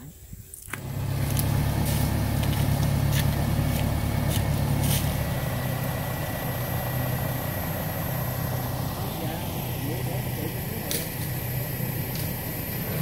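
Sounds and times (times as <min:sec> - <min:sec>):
motorbike engine idling: 0:00.8 - 0:13.0.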